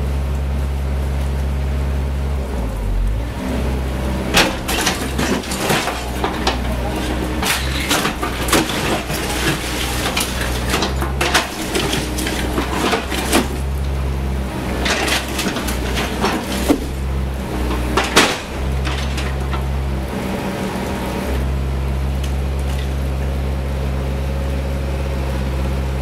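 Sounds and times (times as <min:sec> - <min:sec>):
excavator diesel engine running: 0:00.0 - 0:26.0
rubble cracking and clattering: 0:04.2 - 0:20.8, 0:22.2 - 0:23.3.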